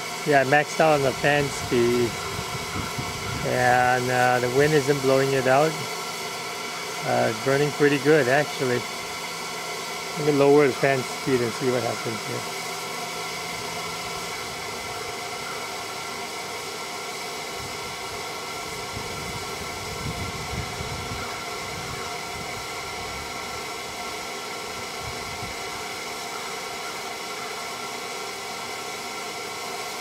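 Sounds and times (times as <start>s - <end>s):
electric blower fan whirring: 0.0s - 30.0s
wind rumbling on microphone: 1.6s - 3.5s, 18.9s - 23.2s.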